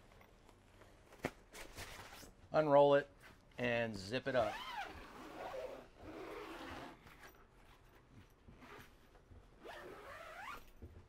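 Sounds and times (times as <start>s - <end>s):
zipper zipping: 4.4s - 7.3s, 9.6s - 10.8s.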